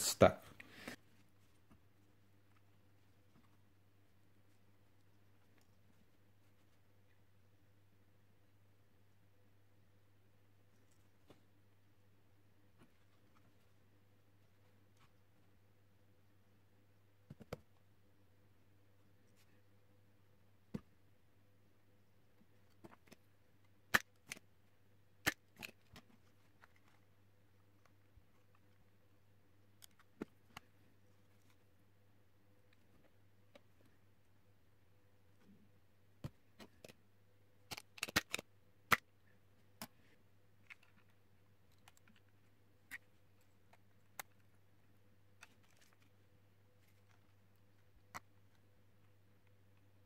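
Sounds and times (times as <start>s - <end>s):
faint steady hum: 0.0s - 50.0s
plastic parts clicking: 37.7s - 39.0s.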